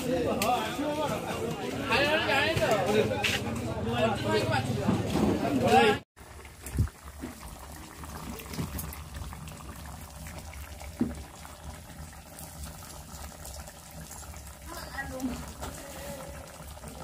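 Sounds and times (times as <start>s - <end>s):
curry boiling and bubbling: 5.6s - 17.0s.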